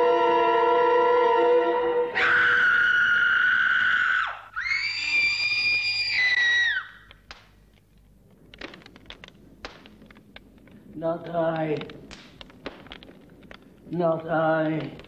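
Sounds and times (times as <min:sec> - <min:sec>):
woman screaming: 0:02.2 - 0:07.0.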